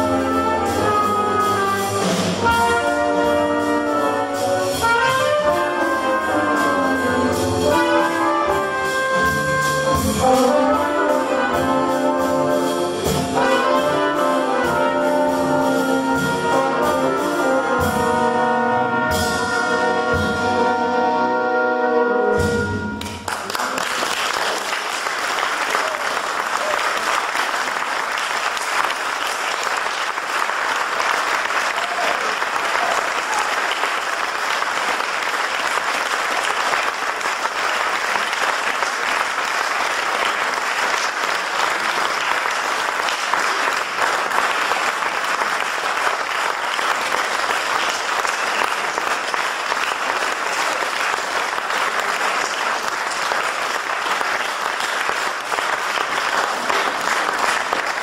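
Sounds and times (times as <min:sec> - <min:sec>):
audience applauding: 0:23.0 - 0:58.0.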